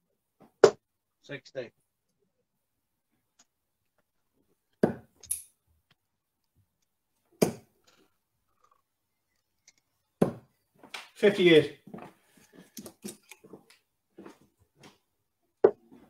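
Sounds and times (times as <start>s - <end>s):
darts thudding into dartboard: 0.6s - 0.8s, 4.8s - 5.1s, 7.4s - 7.8s, 10.2s - 10.5s.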